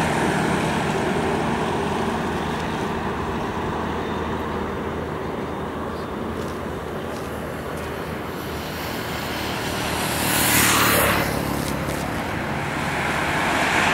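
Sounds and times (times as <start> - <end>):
road noise: 0.0 - 13.9
vehicle engine hum: 0.0 - 13.9
motorcycle passing: 7.4 - 13.9.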